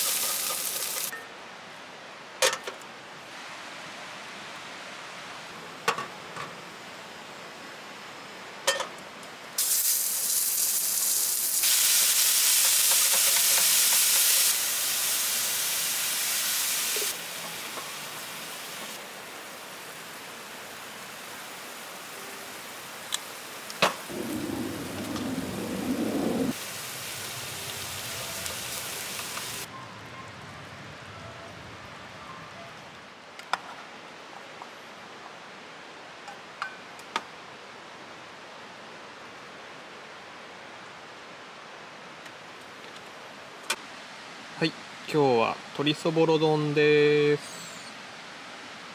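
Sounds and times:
meat sizzling in a pan: 0.0s - 1.1s, 9.6s - 19.0s, 26.5s - 29.7s.

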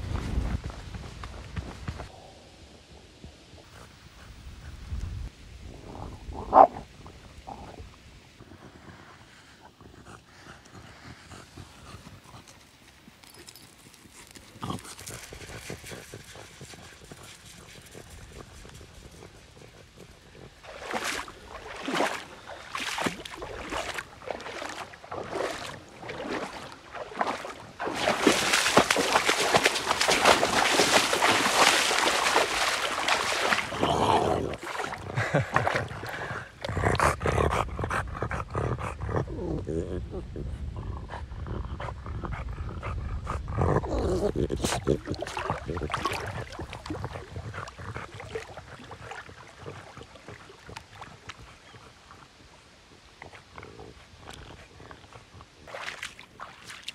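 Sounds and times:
sand and pebbles crunching: 20.6s - 35.7s
dog splashing through river water: 20.6s - 36.3s, 44.7s - 51.7s, 55.6s - 56.9s.

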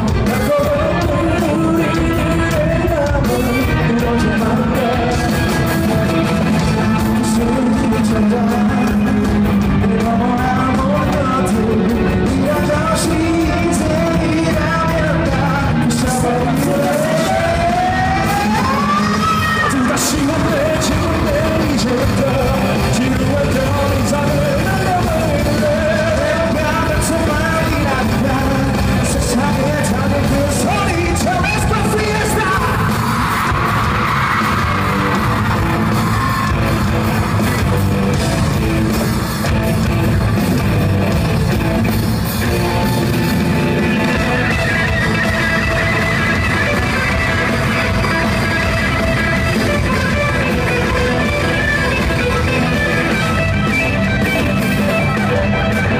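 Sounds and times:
person singing: 0.0s - 39.4s
drums: 0.0s - 55.9s
electric guitar: 0.0s - 55.9s
audience yelling along: 0.2s - 55.9s.

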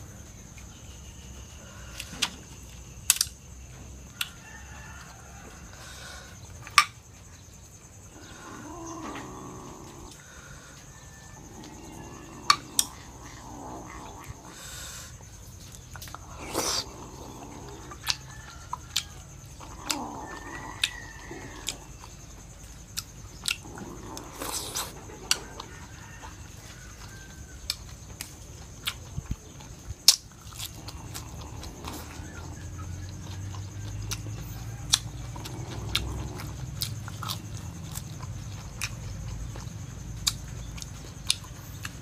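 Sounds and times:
chewing and slurping: 11.1s - 42.0s.

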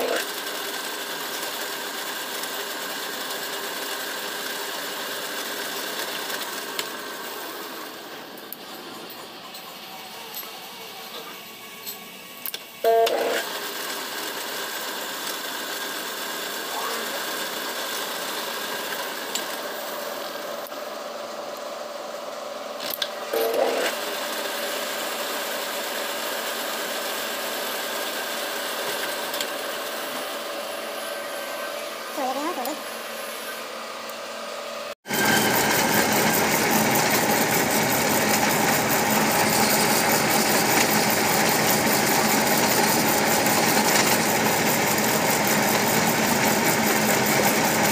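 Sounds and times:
lathe cutting plastic: 0.0s - 9.6s, 35.1s - 47.9s.

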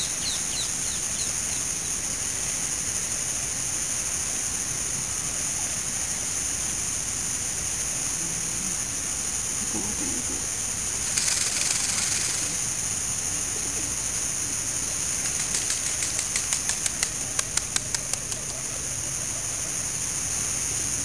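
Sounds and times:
steady hiss: 0.0s - 21.0s
feathers rustling: 10.8s - 13.0s, 14.4s - 17.1s
feathers rattling clicks: 10.8s - 13.2s, 14.4s - 18.3s.

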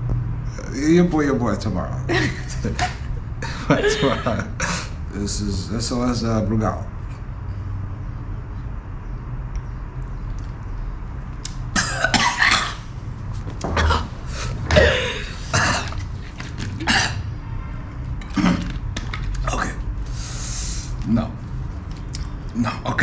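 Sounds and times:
man coughing: 11.8s - 12.9s, 13.8s - 16.0s, 16.8s - 17.3s.

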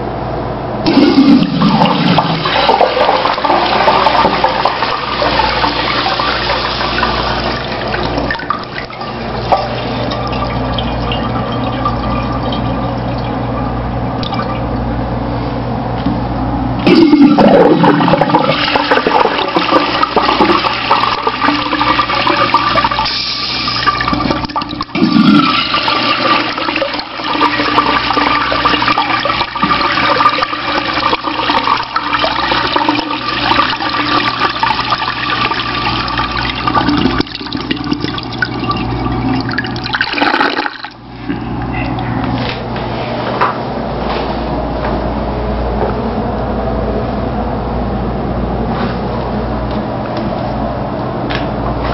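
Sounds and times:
urinal flushing: 0.8s - 14.9s, 16.8s - 42.9s.

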